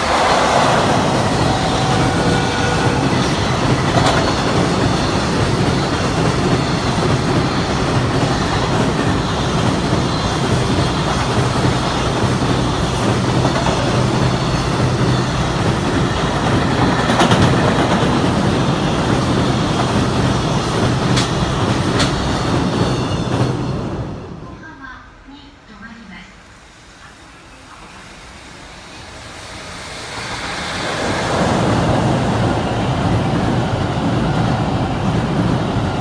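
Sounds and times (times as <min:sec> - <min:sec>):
wheels clacking over rail joints: 0:00.0 - 0:23.6
freight cars rumbling on rails: 0:00.0 - 0:24.5, 0:26.6 - 0:36.0.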